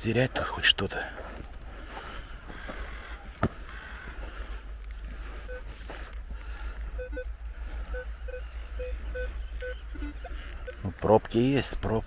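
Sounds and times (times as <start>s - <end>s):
steady low rumble: 0.3s - 12.0s
metal detector beeps: 5.2s - 11.5s.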